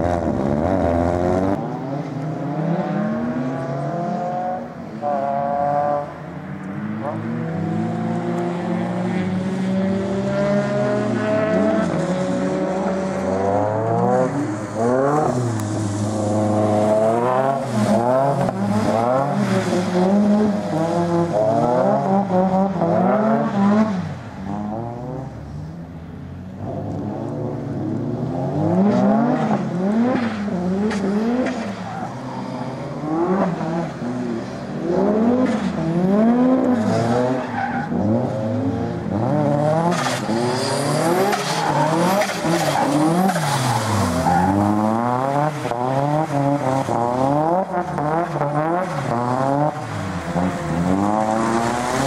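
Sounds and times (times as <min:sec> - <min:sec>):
tyres skidding on wet asphalt: 0:06.8 - 0:24.8, 0:26.6 - 0:52.0
car engine revving: 0:32.4 - 0:52.0.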